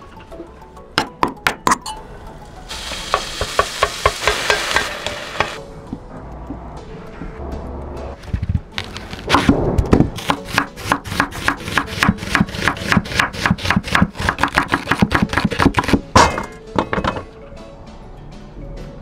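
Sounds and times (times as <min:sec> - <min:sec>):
knife slicing onion on wooden board: 0:08.8 - 0:16.1
onion slices clattering into metal pot: 0:14.4 - 0:17.3.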